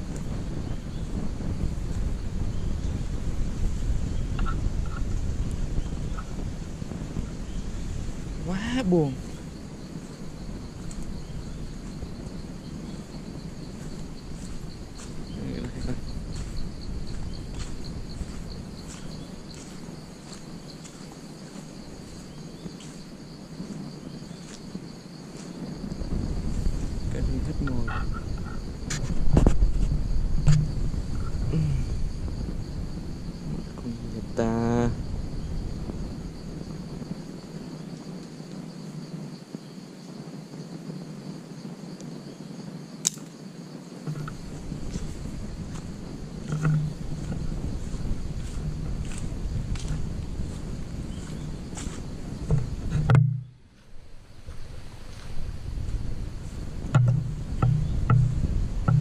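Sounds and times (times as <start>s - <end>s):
crickets chirring: 0.0s - 59.0s
footsteps through grass and leaves: 4.4s - 31.4s, 44.1s - 58.3s
faint rustling: 44.1s - 59.0s.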